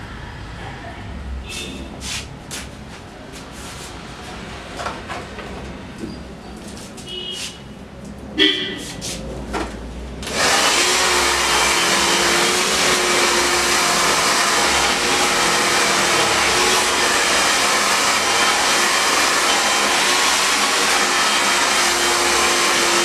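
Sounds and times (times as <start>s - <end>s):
hair dryer running: 10.2s - 23.0s.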